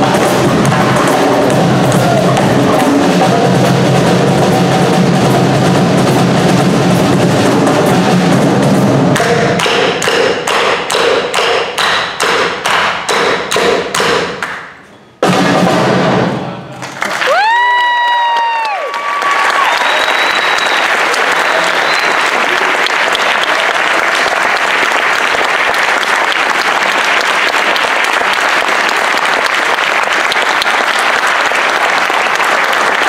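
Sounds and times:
hand drums and drum kit groove: 0.0s - 14.4s
loud drum hit: 0.0s - 14.4s, 15.2s - 16.7s
hand claps: 9.2s - 14.7s, 16.8s - 33.0s.

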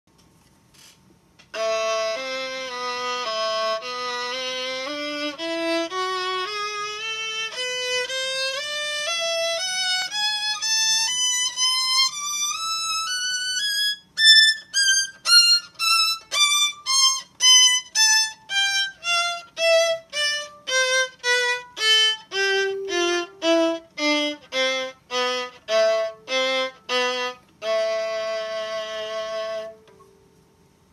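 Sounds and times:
violin playing scale: 1.5s - 30.1s.

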